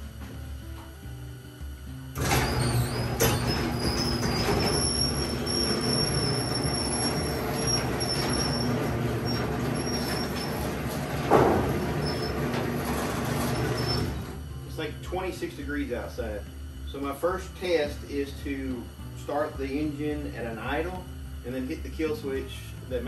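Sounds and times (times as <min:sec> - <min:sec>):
door rollers rumbling in tracks: 0:02.1 - 0:14.5
garage door opener whining: 0:02.1 - 0:15.0
garage door clunk: 0:02.2 - 0:14.4.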